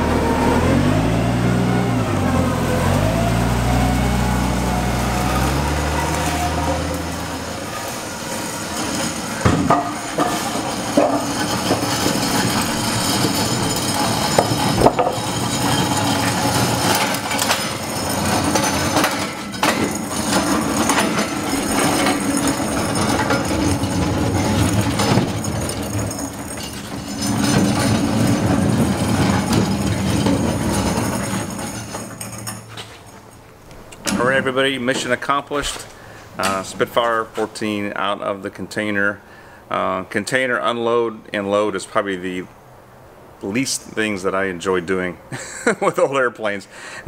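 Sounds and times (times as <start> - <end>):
knocks and bumps: 0.0 - 37.6
low mechanical hum: 0.0 - 37.7.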